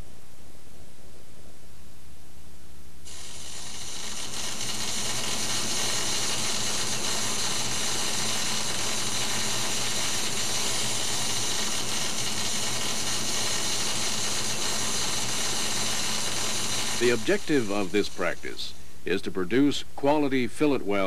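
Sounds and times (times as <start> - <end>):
faint low hum: 0.0 - 3.1
crackling hiss: 3.0 - 21.0.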